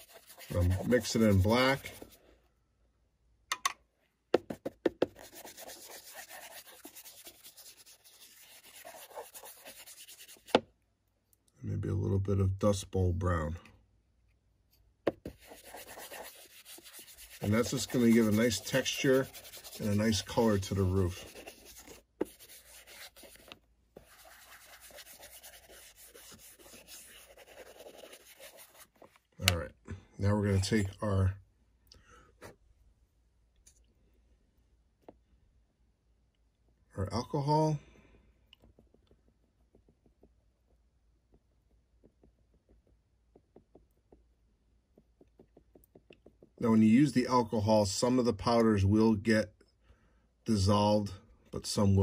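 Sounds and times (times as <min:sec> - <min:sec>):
brush rubbing on paper: 0:00.0 - 0:02.3, 0:04.5 - 0:10.6, 0:15.2 - 0:29.2, 0:38.8 - 0:40.7.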